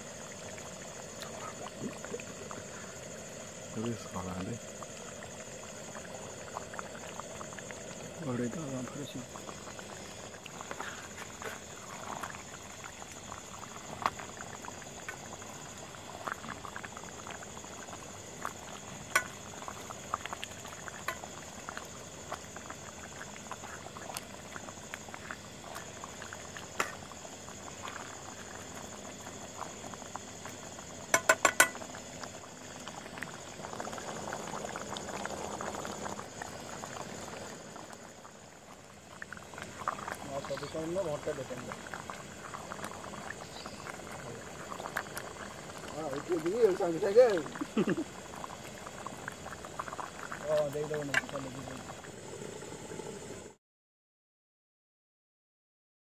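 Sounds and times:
curry bubbling in a pot: 0.0 - 53.6.

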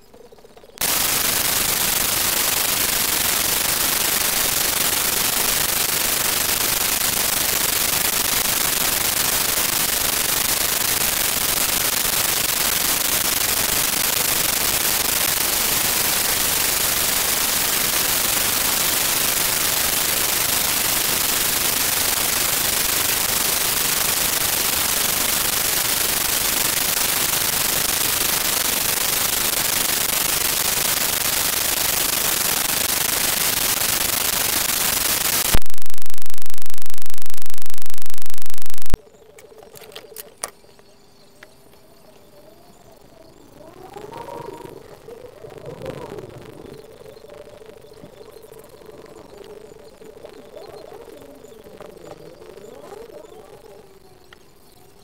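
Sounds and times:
loud static hiss: 0.8 - 39.0.

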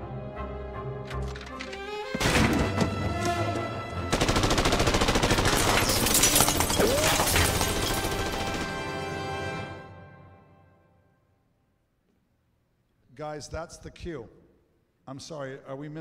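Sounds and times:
film soundtrack music: 0.0 - 5.5, 7.5 - 11.5
rapid machine-gun fire: 4.1 - 8.8.

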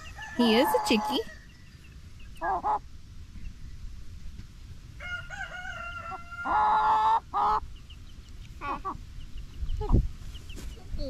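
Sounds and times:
rooster crowing: 0.0 - 1.5, 5.0 - 7.2.

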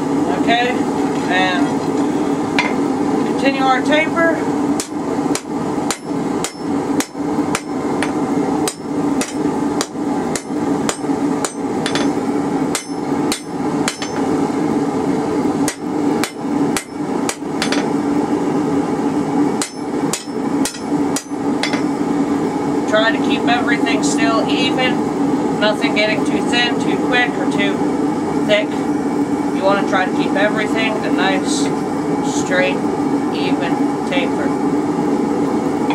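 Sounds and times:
steady hum: 0.0 - 35.9
hammer striking metal on anvil: 4.8 - 14.3, 15.7 - 17.9, 19.6 - 22.0.

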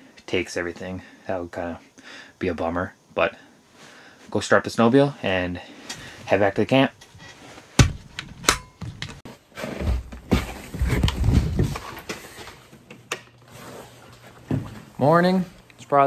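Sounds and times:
sharp knocks: 7.8 - 9.2.

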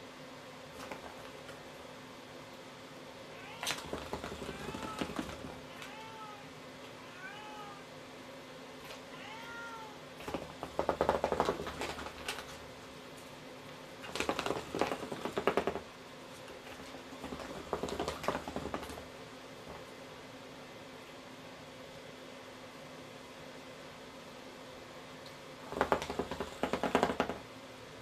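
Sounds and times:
cat meowing: 3.3 - 7.9, 9.1 - 10.0.

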